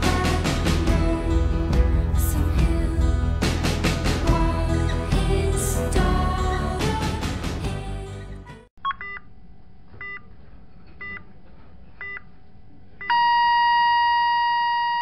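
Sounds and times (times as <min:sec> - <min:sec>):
music: 0:00.0 - 0:08.7
long steady electronic tone: 0:13.0 - 0:15.0.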